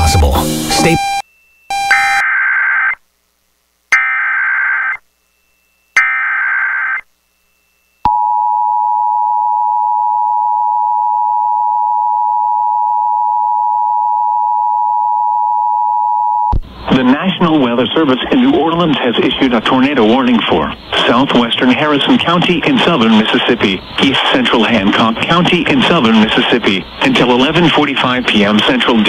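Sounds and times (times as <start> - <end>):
data tone bursts: 0.0 - 3.0, 3.9 - 8.4
steady warning alarm tone: 0.7 - 2.5.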